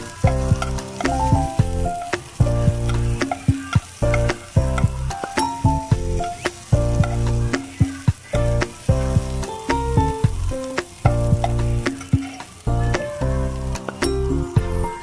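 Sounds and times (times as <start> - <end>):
metal spoon stirring in pan: 0.0 - 5.4, 11.0 - 12.6
background music with steady beat: 0.0 - 15.0
onion and garlic sizzling in oil: 0.0 - 15.0.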